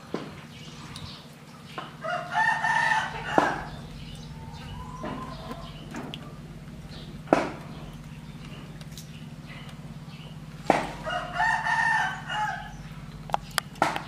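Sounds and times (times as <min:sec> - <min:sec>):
steady low hum: 0:00.0 - 0:14.0
rooster crowing: 0:02.0 - 0:06.1, 0:11.0 - 0:12.8
sharp knocks: 0:07.2 - 0:07.8, 0:10.6 - 0:11.0, 0:13.8 - 0:14.0.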